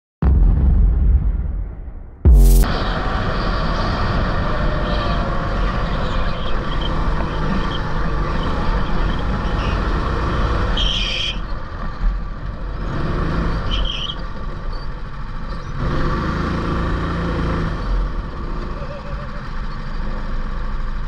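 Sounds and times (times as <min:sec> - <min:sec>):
go-kart engines humming: 0:02.7 - 0:21.0.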